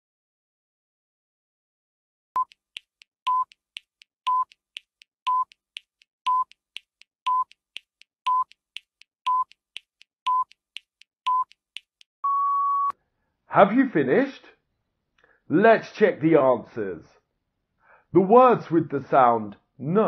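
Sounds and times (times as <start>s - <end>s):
faint timer ticks: 2.4s - 12.1s
countdown timer beeping: 4.3s - 6.6s, 7.3s - 8.6s, 9.3s - 9.6s.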